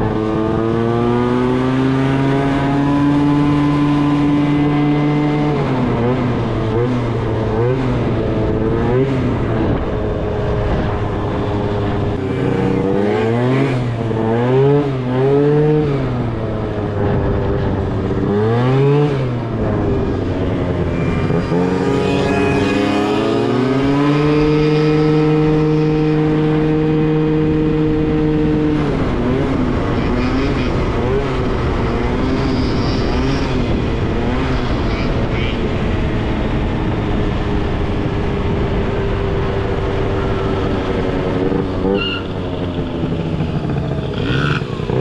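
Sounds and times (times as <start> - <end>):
scooter engine revving: 12.2 - 32.5, 41.4 - 45.0.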